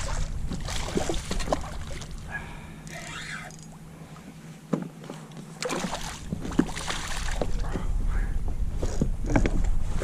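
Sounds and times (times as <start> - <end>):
low rumble: 5.8 - 10.0.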